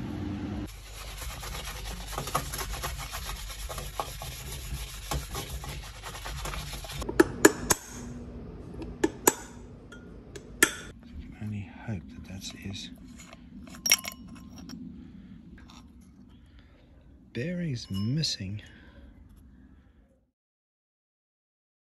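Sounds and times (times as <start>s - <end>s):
scratchy rubbing and scraping: 0.7s - 7.0s.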